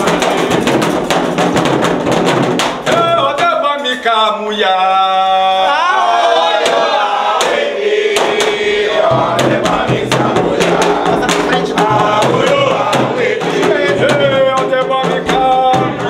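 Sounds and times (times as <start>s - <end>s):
group chanting: 0.0s - 0.8s, 4.2s - 16.0s
sharp percussion strikes: 0.0s - 3.6s, 6.6s - 16.0s.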